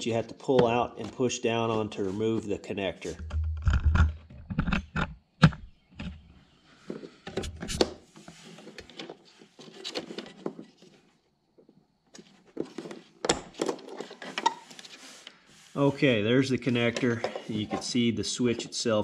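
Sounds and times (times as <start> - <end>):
plastic connector clicking and scraping: 3.1 - 6.2.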